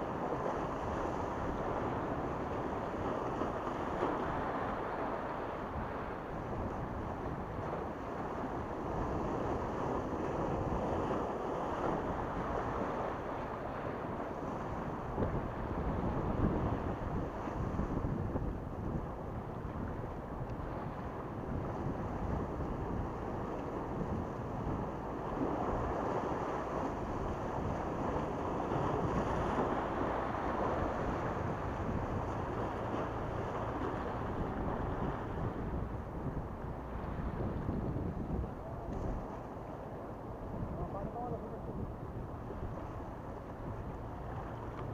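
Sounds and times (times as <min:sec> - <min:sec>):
wind buffeting microphone: 0:00.0 - 0:44.9
waves washing against rocks: 0:20.6 - 0:39.5.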